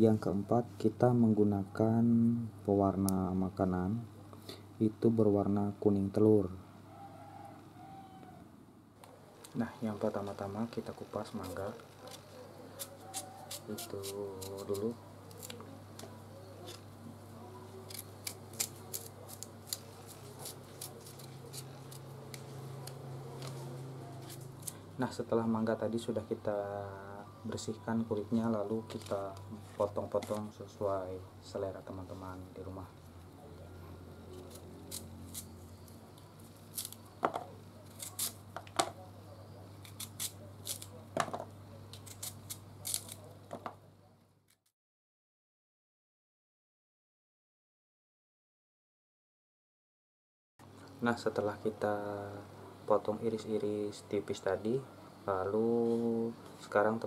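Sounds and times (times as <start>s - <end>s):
knife scraping mango skin: 11.4s - 15.7s, 17.6s - 24.8s, 34.2s - 37.2s, 37.8s - 38.5s, 39.7s - 41.0s, 41.9s - 43.4s.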